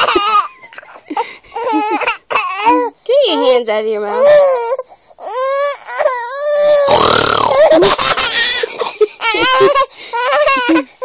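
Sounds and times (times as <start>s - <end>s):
baby squealing and laughing: 0.0s - 0.7s, 1.6s - 2.8s, 4.2s - 11.0s.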